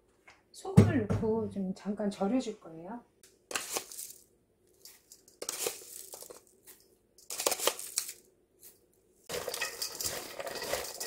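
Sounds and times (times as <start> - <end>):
shredded vegetables rustling: 3.5 - 11.0
spoon scraping salt jar: 4.8 - 8.2, 9.3 - 11.0.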